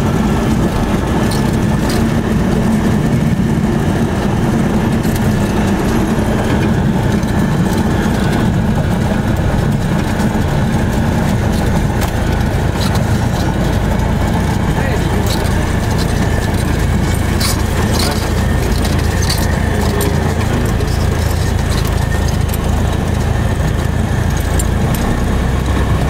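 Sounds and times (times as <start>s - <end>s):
propeller plane engine droning: 0.0s - 26.0s.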